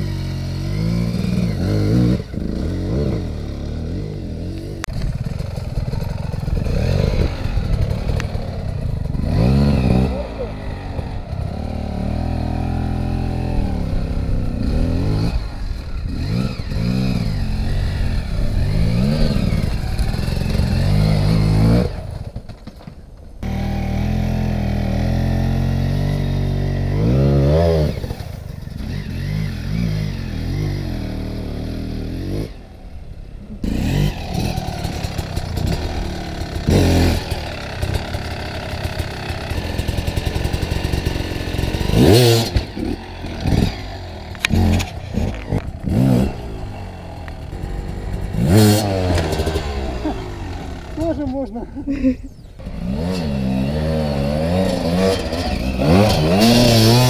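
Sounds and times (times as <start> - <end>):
motorcycle engine revving: 0.0 - 57.0
motorcycle clatter: 4.5 - 11.9, 15.4 - 23.6, 33.6 - 51.6, 52.6 - 57.0.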